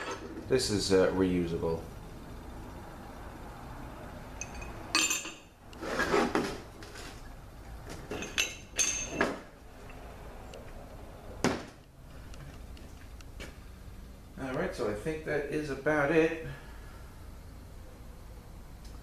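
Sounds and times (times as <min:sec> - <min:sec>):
metal parts clinking: 0:04.4 - 0:05.5, 0:08.0 - 0:10.0
metal parts scraping: 0:08.0 - 0:10.0.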